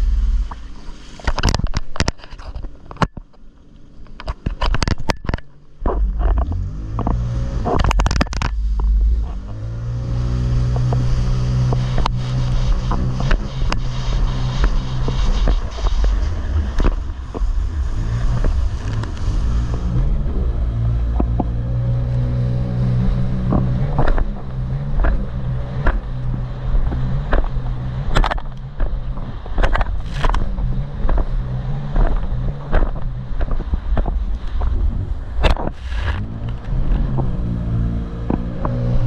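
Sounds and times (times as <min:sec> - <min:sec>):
jet ski engine: 0:00.0 - 0:39.0
spray rushing: 0:10.2 - 0:21.1.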